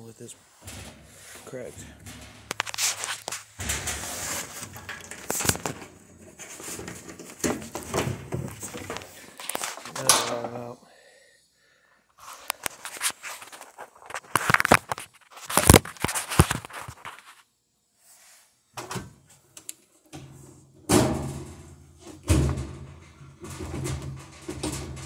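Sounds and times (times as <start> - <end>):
washing machine parts clattering: 0.4 - 10.7, 12.2 - 17.3, 20.1 - 25.0
heavy thud: 0.6 - 6.0.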